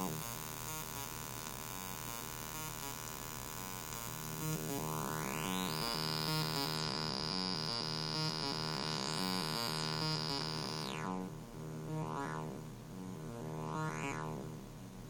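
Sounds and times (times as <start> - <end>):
buzzy synthesizer note pattern: 0.0 - 0.9, 4.0 - 14.6.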